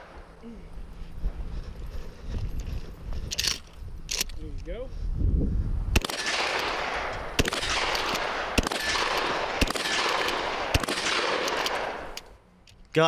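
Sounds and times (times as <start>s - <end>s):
shotgun shots echoing: 6.0s - 12.2s.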